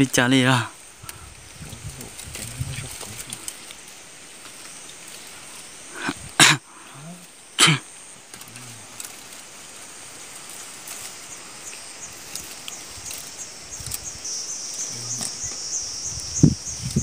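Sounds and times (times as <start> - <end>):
insects trilling: 0.0 - 17.0
dry twigs clicking: 0.8 - 6.1, 8.0 - 15.8.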